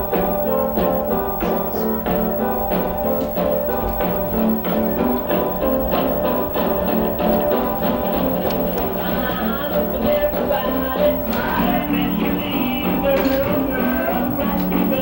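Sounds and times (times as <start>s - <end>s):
rock and roll music: 0.0s - 15.0s.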